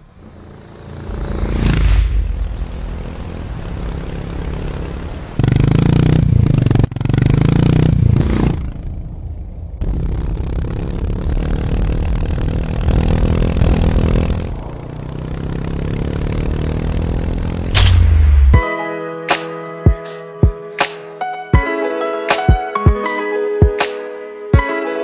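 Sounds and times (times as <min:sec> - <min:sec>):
motorcycle engine revving: 0:00.0 - 0:18.6.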